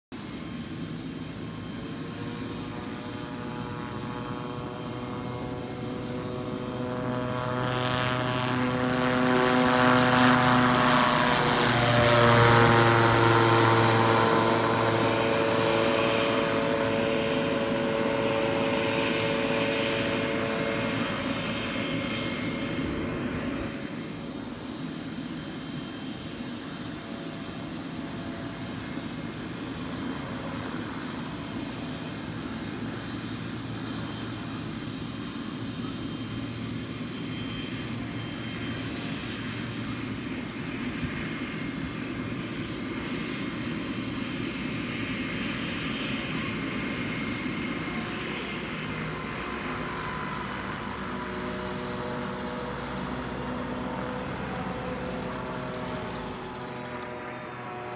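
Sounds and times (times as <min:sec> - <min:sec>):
microlight engine and propeller: 0:00.1 - 0:57.9
high whine sliding down: 0:47.8 - 0:57.9.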